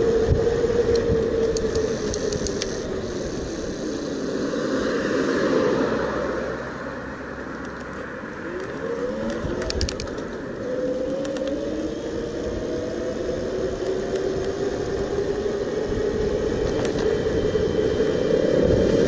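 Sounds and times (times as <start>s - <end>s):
electric bike motor whining: 0.0s - 5.8s, 7.4s - 19.0s
wind and tyre noise: 0.0s - 19.0s
light clicks: 0.9s - 2.8s.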